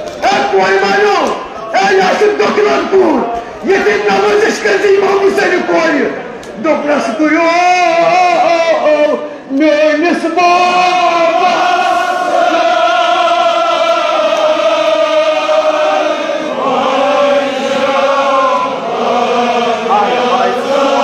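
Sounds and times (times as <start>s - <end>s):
men chanting together: 10.5s - 21.0s.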